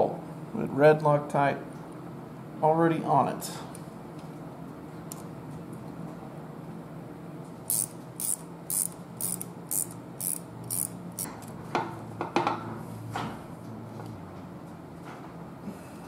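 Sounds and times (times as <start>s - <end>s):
ratchet wrench clicking: 7.7s - 11.3s.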